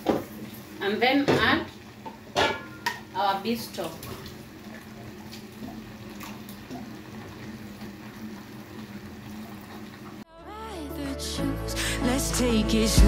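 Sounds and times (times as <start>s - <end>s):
ladle clinking: 2.0s - 3.1s
music: 10.3s - 13.0s.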